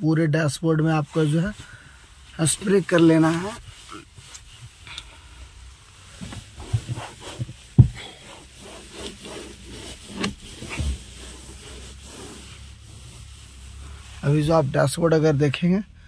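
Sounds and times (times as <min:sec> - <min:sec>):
cloth rubbing on plastic dashboard: 0:00.5 - 0:04.8, 0:05.6 - 0:15.4
hand knocking against dashboard: 0:07.8 - 0:08.0.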